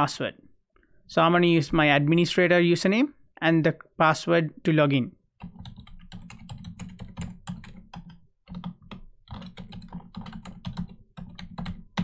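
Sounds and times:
computer keyboard typing: 0:05.4 - 0:12.0.

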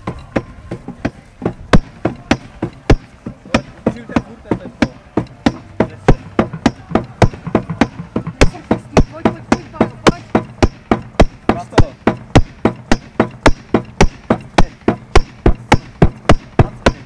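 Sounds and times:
hammer striking box: 0:00.0 - 0:17.0.

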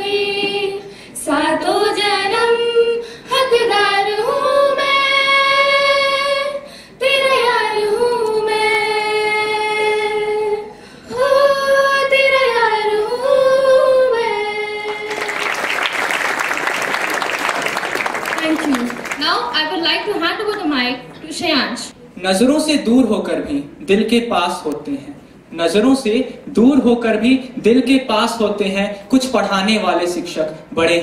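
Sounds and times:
girls singing unaccompanied: 0:00.0 - 0:15.3
audience applause: 0:14.9 - 0:19.5.

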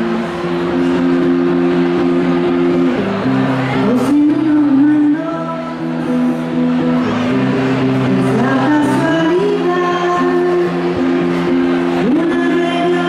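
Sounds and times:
instrumental held chords: 0:00.0 - 0:13.0
woman singing into microphone: 0:03.7 - 0:07.0, 0:08.0 - 0:13.0.

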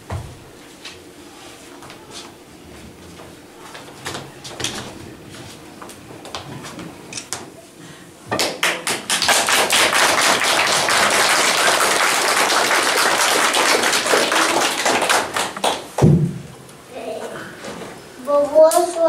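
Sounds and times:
people clapping: 0:08.4 - 0:16.1.

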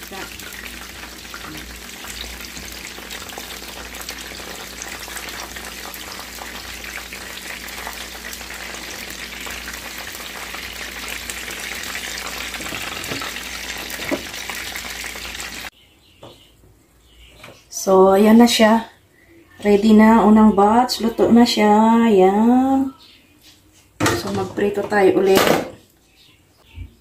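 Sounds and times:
shrimp deep-frying in oil: 0:00.0 - 0:15.7.

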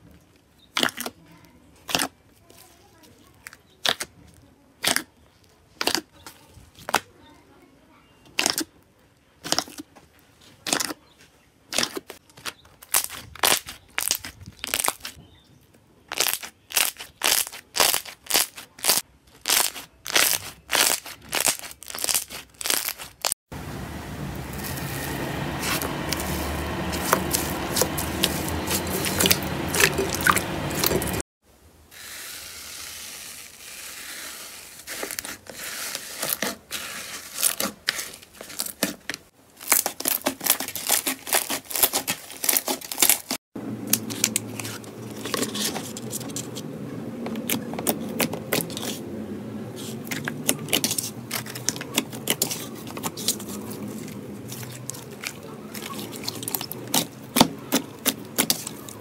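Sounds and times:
slime crackling: 0:11.7 - 0:15.2, 0:16.1 - 0:23.4, 0:49.8 - 0:59.0.

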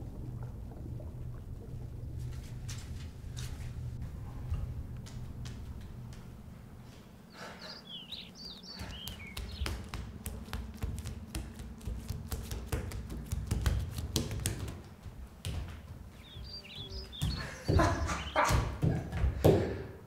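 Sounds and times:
bare feet slapping on tiled floor: 0:05.0 - 0:06.3, 0:08.7 - 0:16.2, 0:17.0 - 0:19.8.

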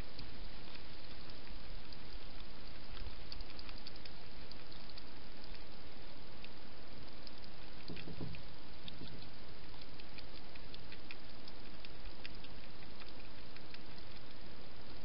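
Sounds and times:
hedgehog eating wet clicks: 0:00.0 - 0:15.0
steady hiss: 0:00.0 - 0:15.0.

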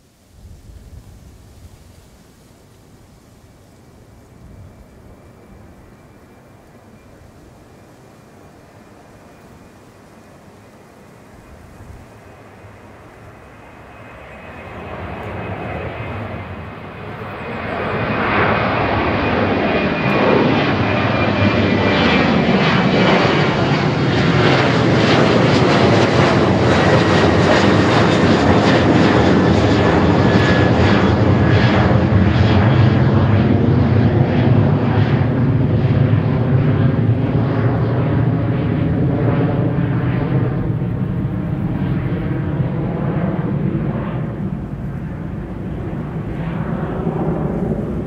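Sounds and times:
jet engine roar overhead: 0:00.0 - 0:48.0
jet fan whine: 0:00.0 - 0:48.0.

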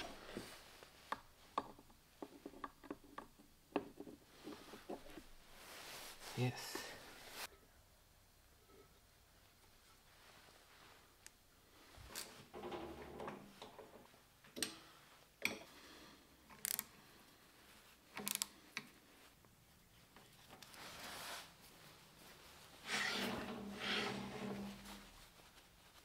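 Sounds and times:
steel clamp scraping along lathe bed: 0:22.8 - 0:24.9.

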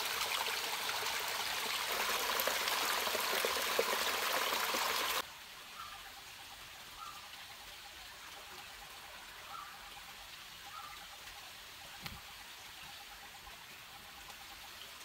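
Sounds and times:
water running into clay pot: 0:00.0 - 0:05.2.

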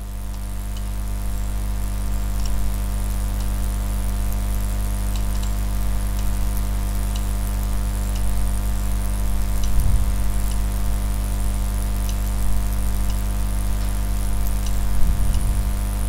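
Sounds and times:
low electrical hum: 0:00.0 - 0:16.0
light hiss: 0:00.3 - 0:16.0.

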